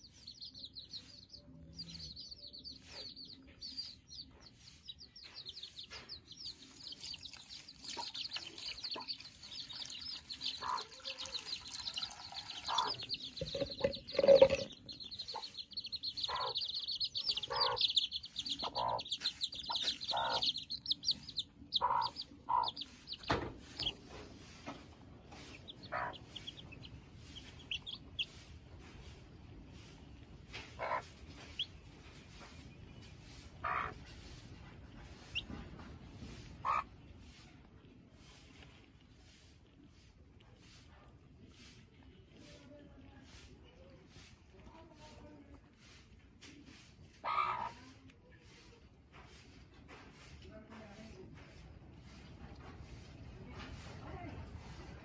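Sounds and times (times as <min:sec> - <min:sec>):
chicks peeping: 0:00.0 - 0:55.0
hen clucking: 0:00.3 - 0:32.7, 0:33.3 - 0:37.1, 0:46.4 - 0:48.0.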